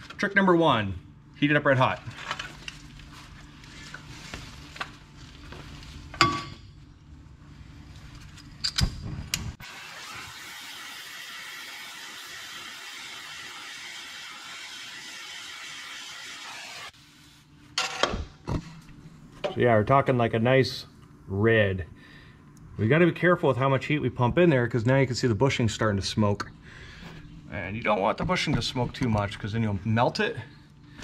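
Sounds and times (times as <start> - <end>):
gas torch flame hissing: 9.5 - 17.0.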